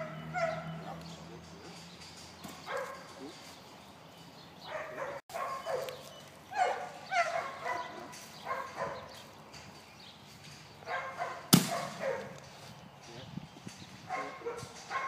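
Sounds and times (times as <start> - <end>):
dog yipping: 0.0 - 1.0, 4.7 - 9.1, 14.1 - 15.0.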